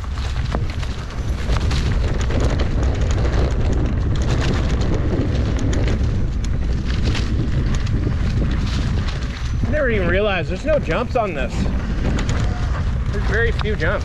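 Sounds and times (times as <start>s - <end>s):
bike rattling over rough ground: 0.0s - 14.0s
wind rumble on microphone: 0.0s - 14.0s.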